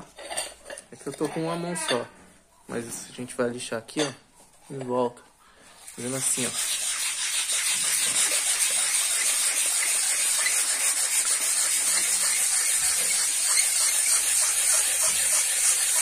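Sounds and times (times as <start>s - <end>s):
wet sandpaper rasping on metal: 5.8s - 16.0s.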